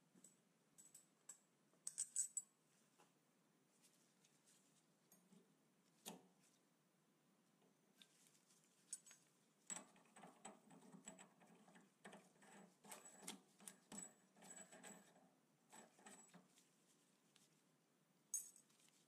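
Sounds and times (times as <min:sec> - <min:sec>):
faint metallic clicks and scraping: 0:07.9 - 0:17.5.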